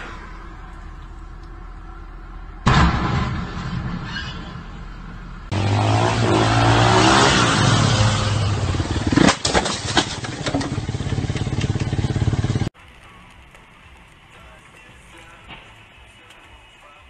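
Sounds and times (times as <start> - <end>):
crash impacts and clattering: 2.6 - 5.6, 8.6 - 12.7
vehicle engine running loud: 5.5 - 12.7.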